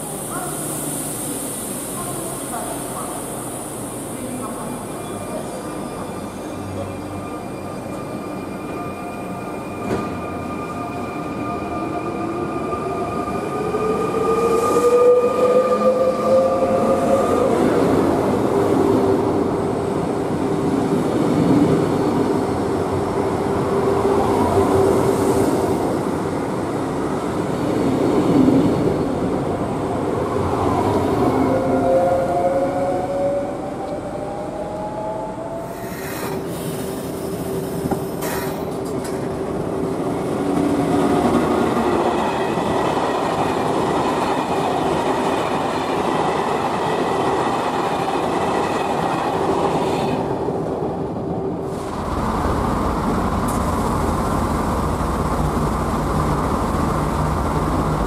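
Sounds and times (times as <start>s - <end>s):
wheels rumbling on rails: 51.7s - 58.0s.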